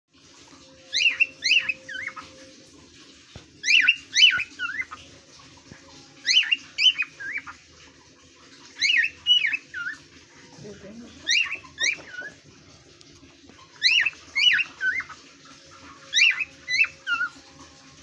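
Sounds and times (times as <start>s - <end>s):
cockatiel whistling song: 0.8s - 2.5s, 3.6s - 5.0s, 6.2s - 7.6s, 8.7s - 10.1s, 11.2s - 12.4s, 13.7s - 17.5s.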